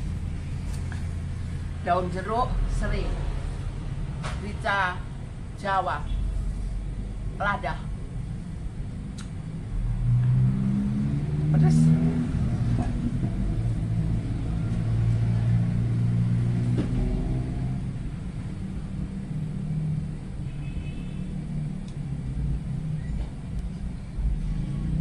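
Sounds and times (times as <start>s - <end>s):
low machine hum: 0.0s - 25.0s.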